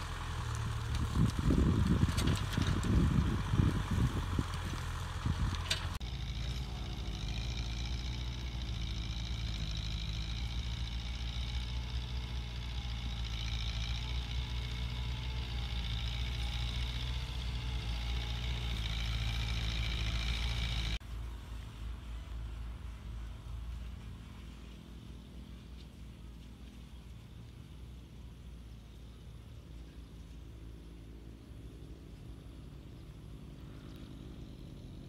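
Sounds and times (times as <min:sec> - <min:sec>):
tractor diesel engine under load: 0:00.0 - 0:26.7.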